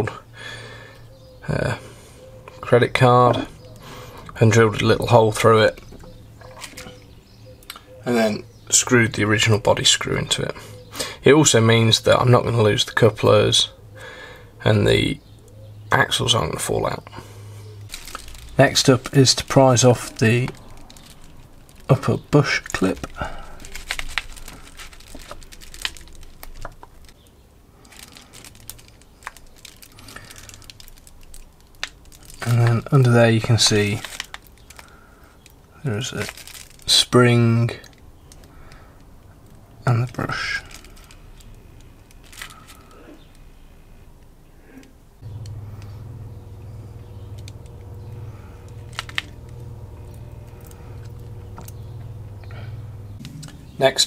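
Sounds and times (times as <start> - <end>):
steady low hum: 0.2 - 12.5, 13.1 - 25.1, 45.0 - 54.0.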